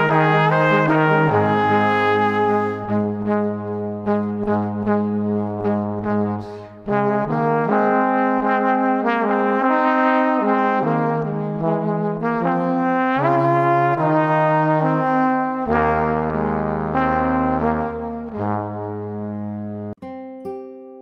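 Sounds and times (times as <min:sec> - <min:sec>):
music with long held notes: 0:00.0 - 0:12.6.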